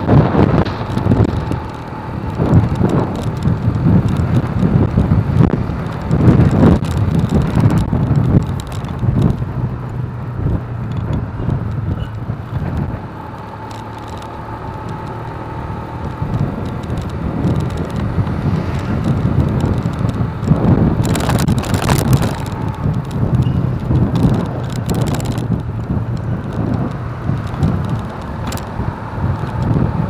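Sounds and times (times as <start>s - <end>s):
motorcycle engine rumble: 0.0s - 30.0s
wind buffeting microphone: 0.0s - 30.0s.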